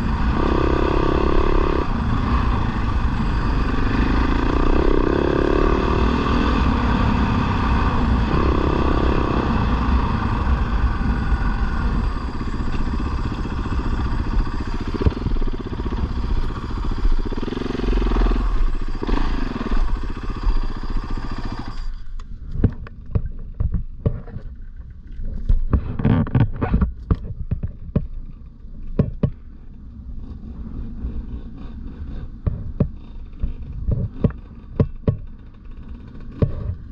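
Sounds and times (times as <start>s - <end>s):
dirt bike engine revving: 0.0s - 21.9s.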